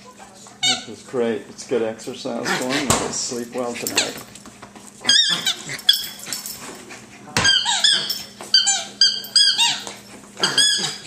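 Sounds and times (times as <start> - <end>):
squeaky dog toy squeaking: 5.1 - 6.2, 7.4 - 11.0.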